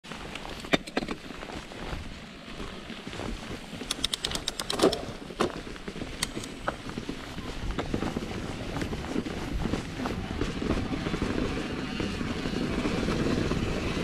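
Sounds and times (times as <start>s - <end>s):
mountain bike clicking and rattling: 0.1s - 14.0s
wind noise on microphone: 3.2s - 14.0s.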